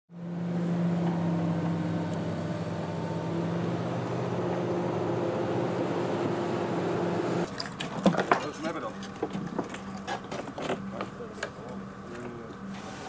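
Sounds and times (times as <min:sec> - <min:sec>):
excavator diesel engine running: 0:00.1 - 0:07.5
wreckage knocking and clattering: 0:07.6 - 0:11.1.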